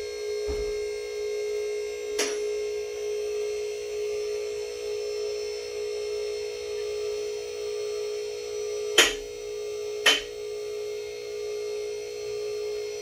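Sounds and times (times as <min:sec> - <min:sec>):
hydraulic lift motor humming: 0:00.0 - 0:03.0, 0:08.7 - 0:10.4
sharp metallic clacks: 0:09.0 - 0:09.2, 0:10.0 - 0:10.3.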